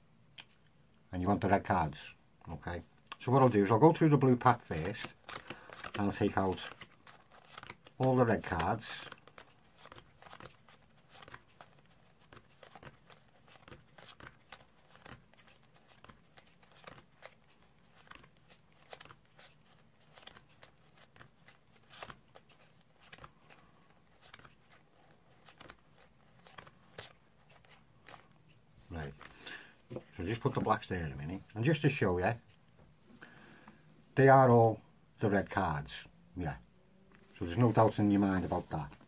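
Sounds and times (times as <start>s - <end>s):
playing cards clicking: 4.6s - 30.6s.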